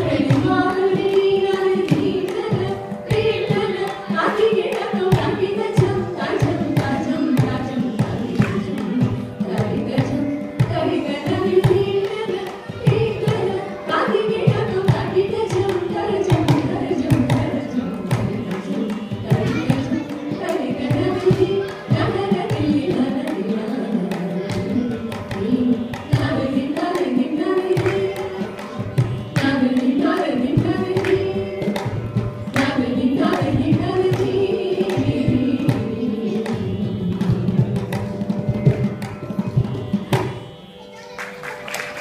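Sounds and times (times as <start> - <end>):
women singing: 0.0 - 38.4.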